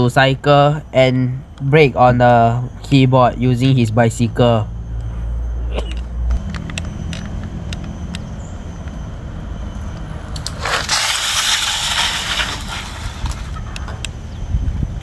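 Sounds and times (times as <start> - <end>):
keyboard scraping on asphalt: 10.1 - 14.1.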